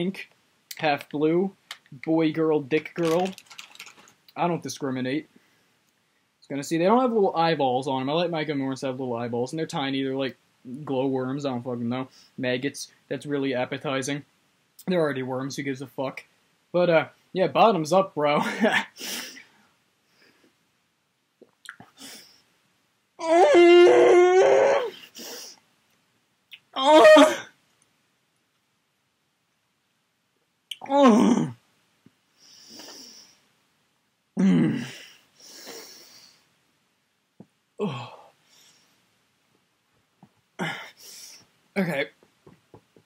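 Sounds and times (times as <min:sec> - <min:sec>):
man crying out: 0:23.2 - 0:25.0, 0:26.8 - 0:27.5
man groaning: 0:26.8 - 0:27.4, 0:30.8 - 0:31.6, 0:34.4 - 0:35.0, 0:37.8 - 0:38.3
man sighing: 0:34.4 - 0:35.9, 0:37.8 - 0:38.4, 0:40.6 - 0:41.4.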